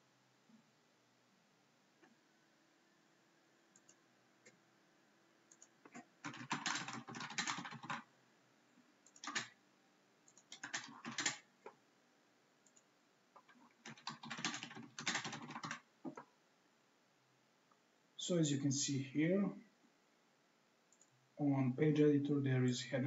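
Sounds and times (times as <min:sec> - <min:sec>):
computer keyboard typing: 0:03.8 - 0:04.0, 0:05.5 - 0:08.1, 0:09.0 - 0:09.6, 0:10.3 - 0:11.5, 0:13.4 - 0:16.3.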